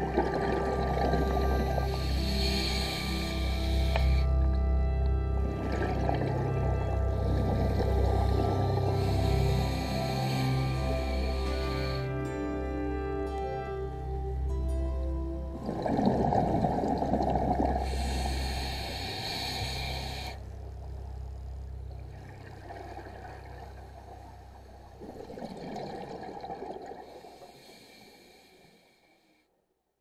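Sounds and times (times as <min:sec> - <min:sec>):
exhaled bubbles rumbling underwater: 0:00.0 - 0:12.0, 0:15.3 - 0:27.6
regulator inhalation hiss: 0:01.0 - 0:04.4, 0:07.2 - 0:12.3, 0:17.6 - 0:20.5, 0:27.0 - 0:29.4.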